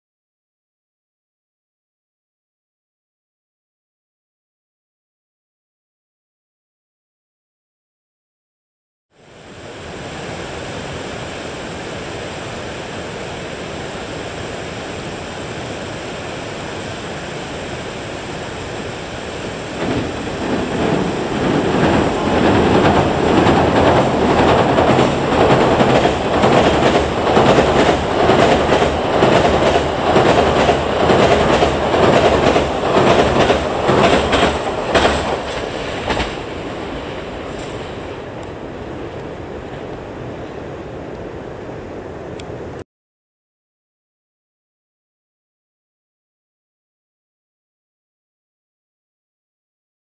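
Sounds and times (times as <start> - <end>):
train wheels clattering over rail joints: 19.7 - 38.0.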